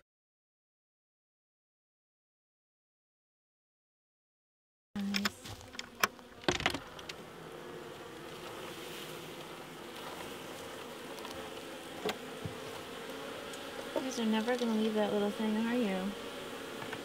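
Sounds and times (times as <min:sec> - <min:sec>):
honey bees buzzing: 0:05.0 - 0:17.0
wooden knocks and clicks: 0:05.7 - 0:06.8.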